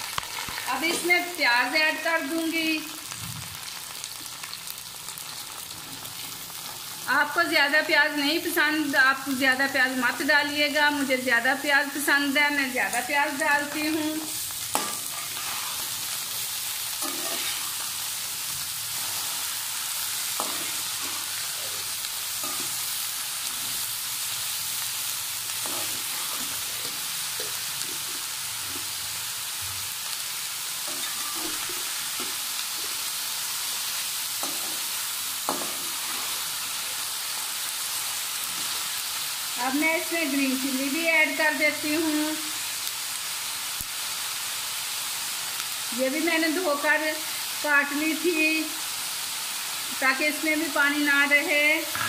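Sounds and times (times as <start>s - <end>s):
vegetables sizzling in oil: 0.0s - 52.0s
metal spatula scraping pot: 17.0s - 17.8s.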